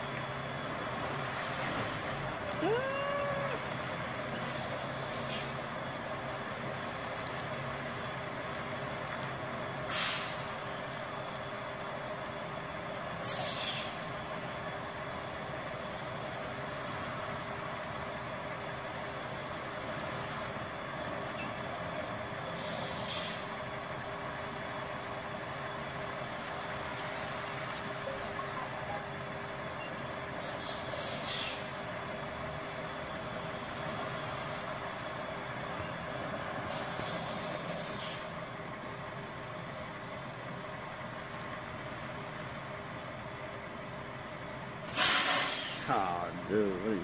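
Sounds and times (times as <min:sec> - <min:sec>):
diesel engine running: 0:00.0 - 0:47.0
air brakes hissing: 0:04.4 - 0:05.7, 0:09.8 - 0:10.7, 0:13.2 - 0:14.2, 0:22.5 - 0:23.6, 0:30.4 - 0:31.8, 0:36.6 - 0:38.5, 0:42.1 - 0:42.6, 0:44.4 - 0:46.0.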